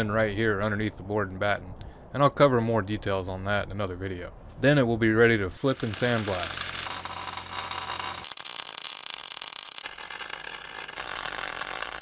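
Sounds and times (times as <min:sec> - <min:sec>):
welding arc crackling and sizzling: 0:05.7 - 0:12.0.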